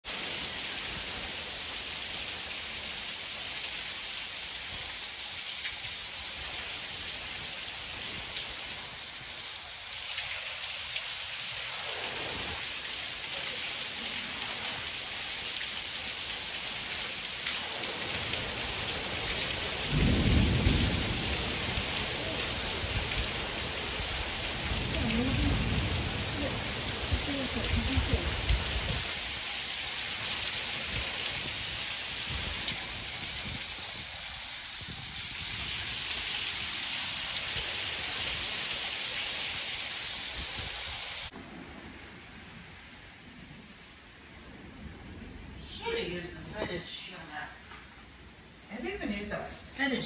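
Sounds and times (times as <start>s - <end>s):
heavy rain falling: 0.0s - 50.0s
thunder rolling: 17.7s - 29.1s.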